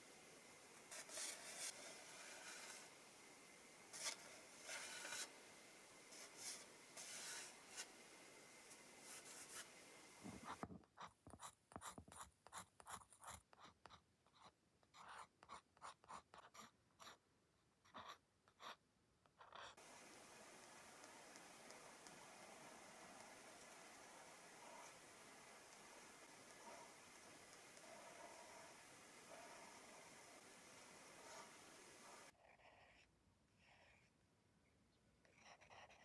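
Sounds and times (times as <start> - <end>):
fountain pen scratching on paper: 0.9 - 2.9, 4.0 - 5.3, 10.4 - 17.2, 17.8 - 18.8, 19.4 - 19.8, 20.6 - 30.3, 35.4 - 36.0
pencil scratching on paper: 0.9 - 2.9, 3.9 - 5.4, 6.1 - 7.9, 10.4 - 17.2, 17.8 - 34.1, 35.3 - 36.0.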